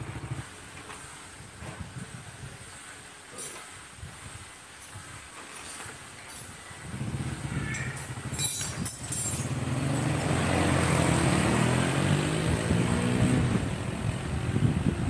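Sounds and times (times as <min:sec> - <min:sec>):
motorbike engine accelerating: 0:00.0 - 0:00.5, 0:06.9 - 0:15.0.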